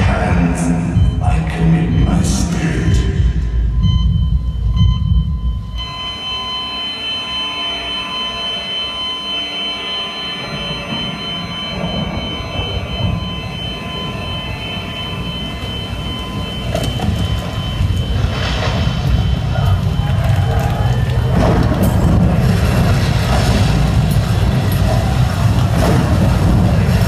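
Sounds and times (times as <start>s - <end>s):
low rumbling drone: 0.0s - 27.0s
held high tones: 3.7s - 22.2s.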